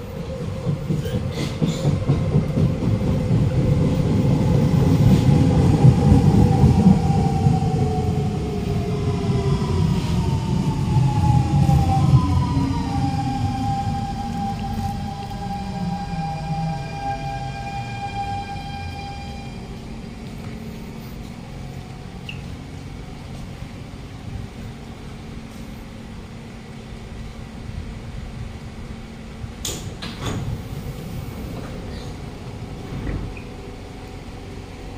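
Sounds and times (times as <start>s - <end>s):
train standing hum: 0.0s - 34.9s
train doors sliding open: 0.4s - 21.4s, 29.6s - 34.0s
train motor electronic whine: 10.1s - 22.2s.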